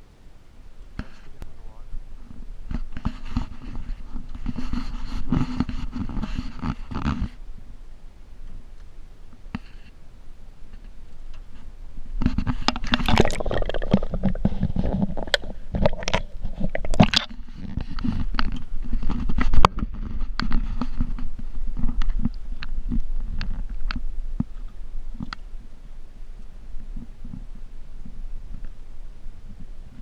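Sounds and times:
muffled knocks and scrapes on boat: 0:02.2 - 0:07.4, 0:10.7 - 0:13.0, 0:14.2 - 0:25.4.

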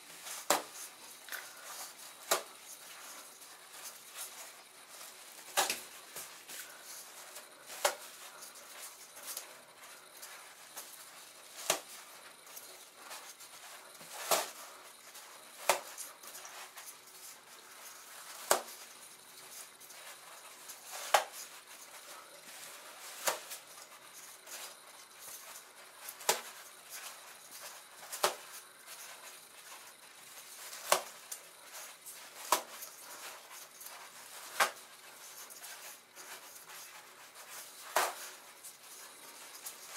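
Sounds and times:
toilet paper rustling and snapping: 0:00.2 - 0:10.9.

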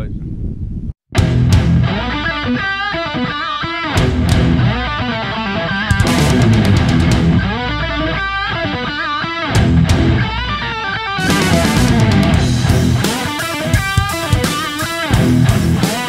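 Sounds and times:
drums: 0:01.1 - 0:03.1, 0:03.9 - 0:16.0
rock music: 0:01.1 - 0:16.0
electric guitar lead line: 0:01.2 - 0:16.0.

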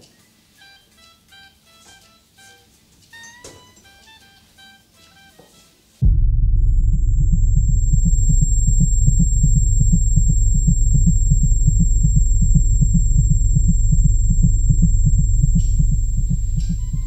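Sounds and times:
deep steady hum: 0:06.0 - 0:17.0
heartbeat-like low thumps: 0:06.0 - 0:17.0.

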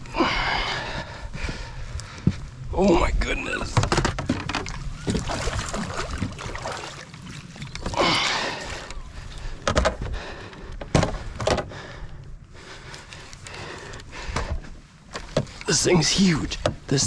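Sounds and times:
water slapping against boat hull: 0:03.8 - 0:08.2.

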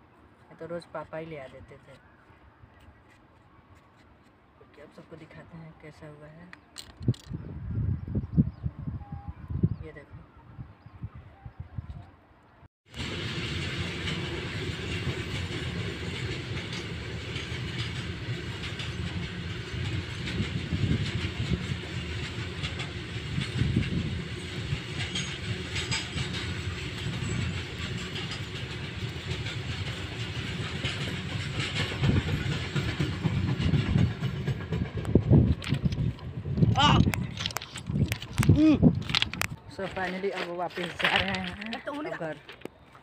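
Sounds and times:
freight train rumbling past: 0:12.9 - 0:37.4
wheels clattering over rail joints: 0:13.0 - 0:42.8.

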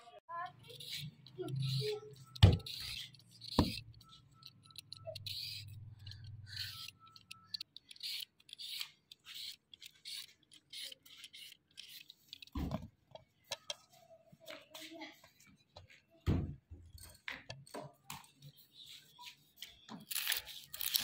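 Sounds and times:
peeler scraping cucumber skin: 0:04.7 - 0:12.5, 0:20.1 - 0:21.0.

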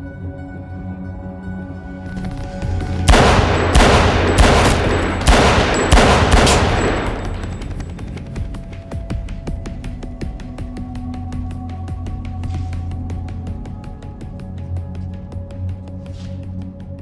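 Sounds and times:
film score: 0:00.0 - 0:17.0
pistol shots echoing: 0:03.1 - 0:07.9.

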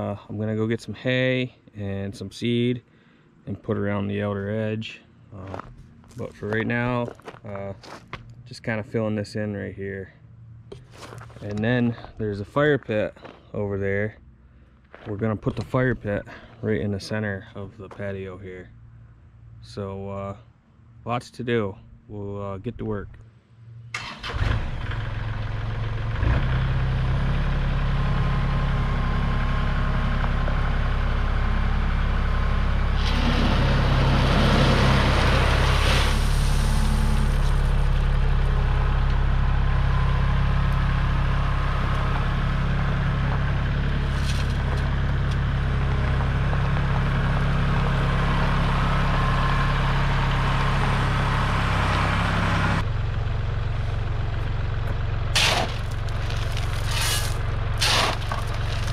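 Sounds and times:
gravel crunching and scraping: 0:03.5 - 0:18.7, 0:32.8 - 0:49.0, 0:52.8 - 0:58.9
tractor diesel engine running: 0:23.9 - 0:58.9.

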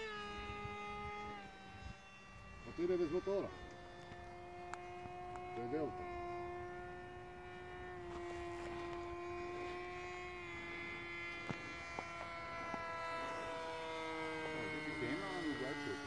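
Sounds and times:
model plane propeller buzzing: 0:00.0 - 0:16.0
faint clicks: 0:03.6 - 0:05.5.

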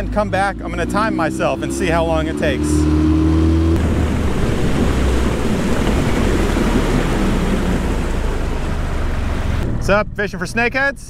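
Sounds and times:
outboard motor running: 0:00.0 - 0:09.7
water noise: 0:00.0 - 0:10.1
wind on microphone: 0:02.8 - 0:10.0.

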